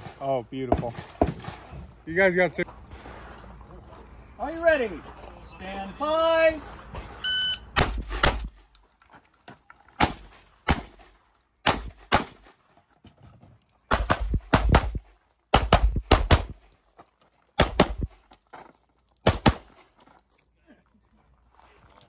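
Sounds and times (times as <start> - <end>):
gunshots: 0.0 - 1.8, 7.8 - 8.6, 10.0 - 12.5, 13.9 - 16.6, 17.6 - 18.1, 19.2 - 19.7.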